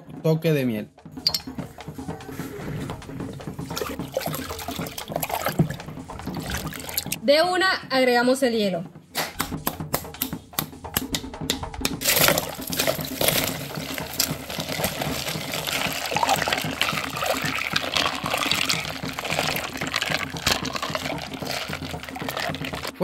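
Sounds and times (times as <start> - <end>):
liquid sloshing and swirling: 2.2 - 7.2, 12.0 - 23.0
ice clicking: 12.0 - 23.0.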